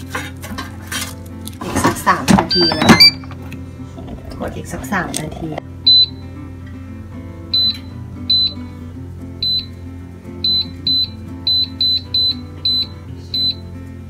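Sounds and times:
air fryer button beeps: 0:02.5 - 0:03.2, 0:05.9 - 0:06.2, 0:07.5 - 0:08.6, 0:09.4 - 0:09.7, 0:10.4 - 0:13.6.

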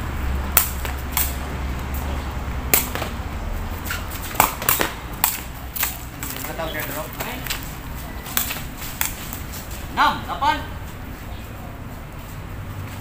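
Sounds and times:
steady low rumble: 0:00.0 - 0:06.4
ball smacking off feet: 0:02.7 - 0:03.2, 0:03.8 - 0:07.7.

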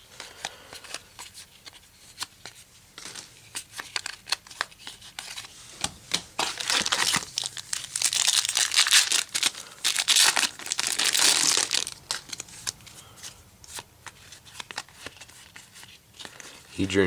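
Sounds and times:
foil wrapper tearing and crinkling: 0:06.4 - 0:12.8.

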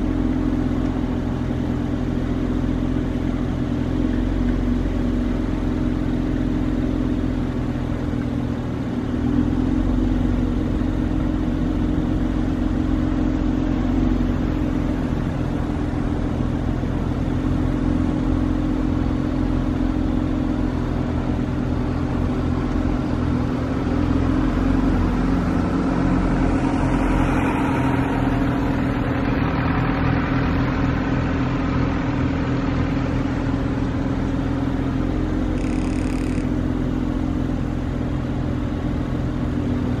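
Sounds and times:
car engine idling: 0:00.0 - 0:40.0
short high-pitched tone: 0:35.6 - 0:36.5.

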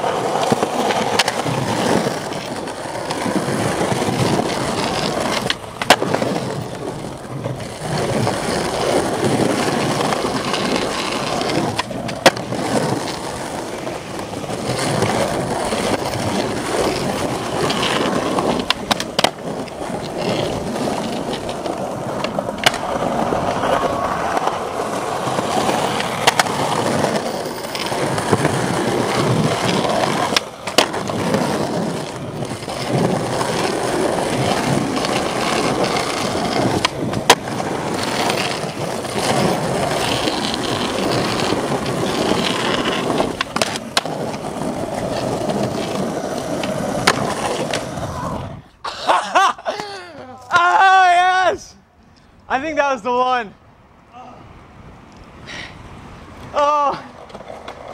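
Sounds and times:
skateboard clacks: 0:00.0 - 0:48.5, 0:56.4 - 0:57.9
skateboard wheels rolling on asphalt: 0:00.0 - 0:57.9.

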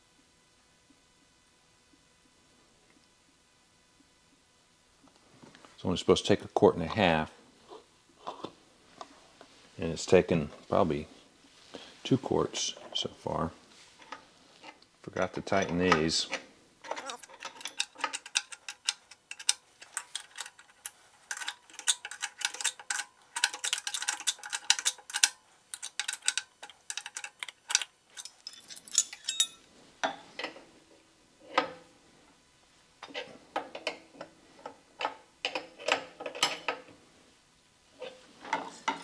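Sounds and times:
metal clinks: 0:28.1 - 0:29.7.

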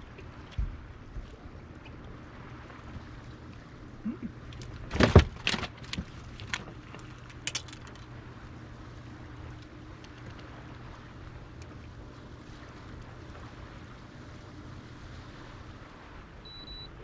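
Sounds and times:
steady low hum: 0:00.0 - 0:17.0
metallic clicks and knocks of gear: 0:04.5 - 0:08.1.

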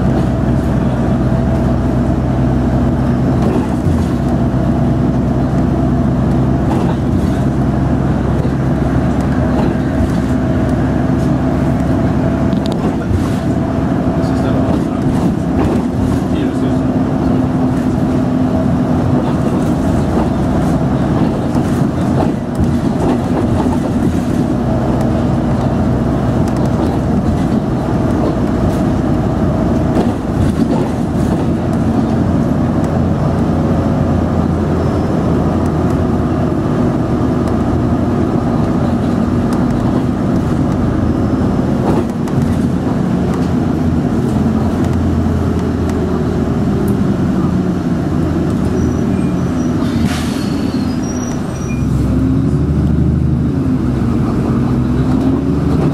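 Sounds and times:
bus engine drone inside cabin: 0:00.0 - 0:55.9.

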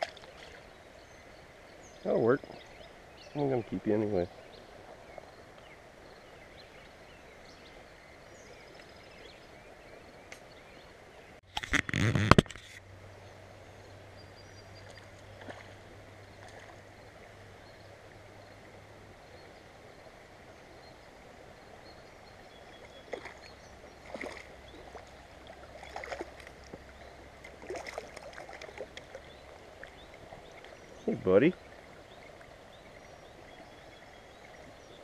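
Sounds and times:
stream water flowing: 0:00.0 - 0:35.0.

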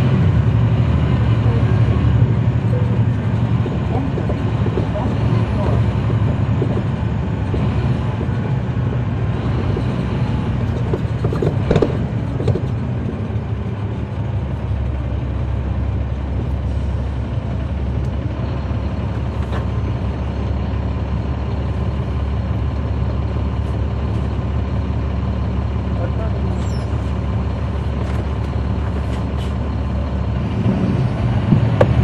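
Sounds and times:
bus diesel engine drone: 0:00.0 - 0:32.0
rattles and clicks: 0:02.2 - 0:15.2.

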